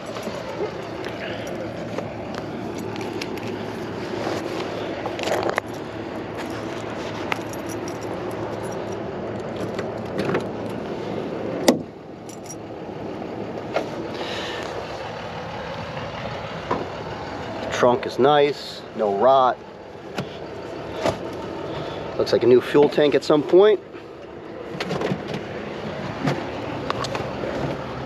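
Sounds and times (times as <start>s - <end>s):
car keys jingling: 0.0s - 10.9s, 12.2s - 12.8s
trunk lock clack: 9.4s - 10.8s, 11.6s - 12.6s.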